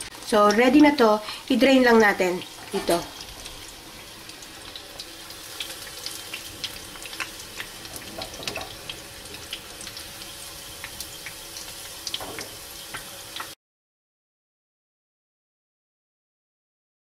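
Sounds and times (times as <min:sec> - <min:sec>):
food sizzling in hot oil: 0:00.0 - 0:13.6
oil crackling and popping: 0:02.4 - 0:13.6.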